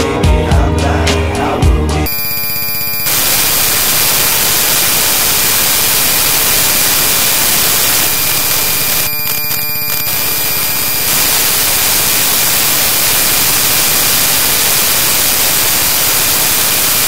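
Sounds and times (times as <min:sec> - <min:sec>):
faint steady tones: 0:02.1 - 0:16.9
harsh digital static: 0:02.1 - 0:17.0.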